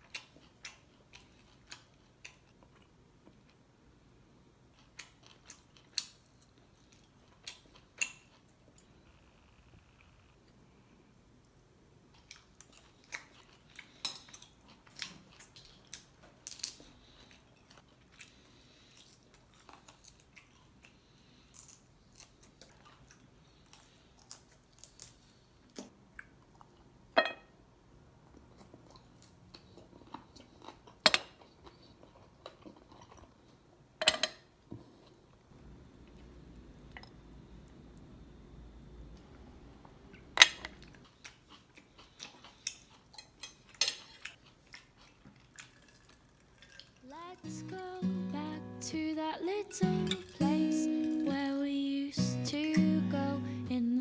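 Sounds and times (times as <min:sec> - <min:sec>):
person chewing crunchy food: 0:04.7 - 0:08.6, 0:12.2 - 0:26.9, 0:28.4 - 0:33.6, 0:40.7 - 0:47.4.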